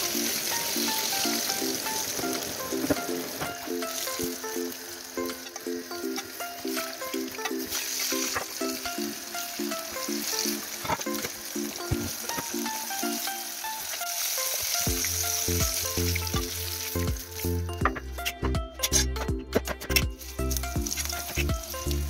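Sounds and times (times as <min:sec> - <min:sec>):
fish deep-frying in hot oil: 0:00.0 - 0:19.2, 0:19.9 - 0:22.0
background music: 0:00.0 - 0:22.0.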